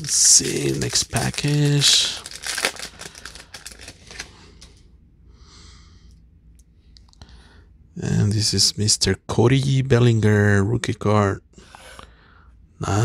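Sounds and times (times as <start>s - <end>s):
cards clicking and rustling: 0.0s - 4.3s.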